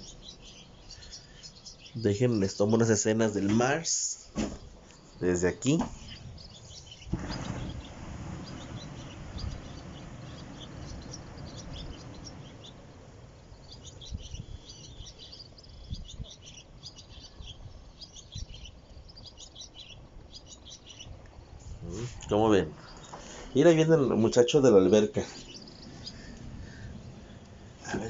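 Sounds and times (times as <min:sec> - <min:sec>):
small birds chirping: 0:00.0 - 0:28.0
low rushing noise: 0:07.1 - 0:14.6, 0:21.6 - 0:28.0.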